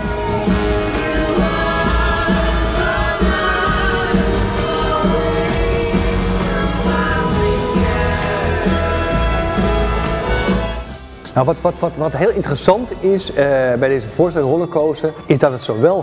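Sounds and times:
voices singing long notes: 0.0s - 11.2s
deep steady bass: 0.0s - 14.4s.

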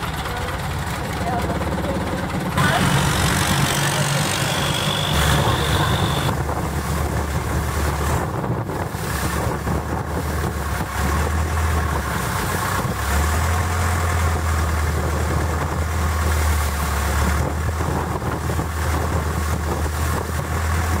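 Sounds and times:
boat engine drone: 0.0s - 21.0s.

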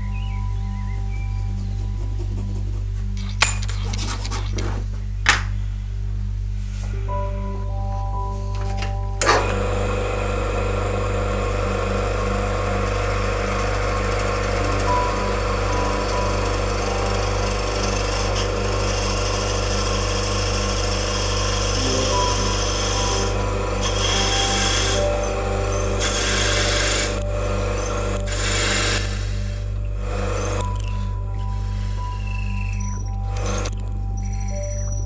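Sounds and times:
drill press boring into wood: 9.3s - 25.3s, 25.9s - 35.0s.

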